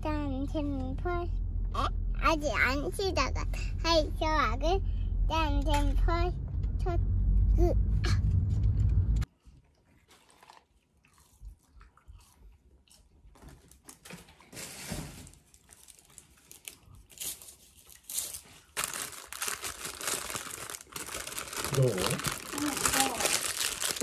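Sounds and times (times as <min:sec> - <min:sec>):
child's voice: 0:00.0 - 0:08.3, 0:22.4 - 0:23.6
car interior rumble: 0:00.0 - 0:09.3
paper wrappers rustling: 0:13.6 - 0:24.0.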